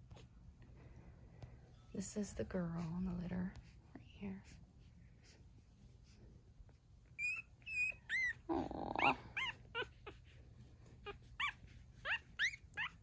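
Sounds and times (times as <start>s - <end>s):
puppies squeaking and whimpering: 7.1s - 10.4s, 11.0s - 13.0s.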